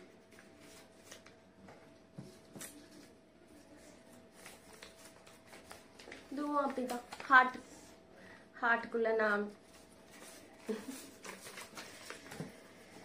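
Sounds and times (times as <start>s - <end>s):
faint steady hum: 0.0s - 13.0s
paper rustling: 0.3s - 1.4s, 2.2s - 7.6s, 9.7s - 12.6s.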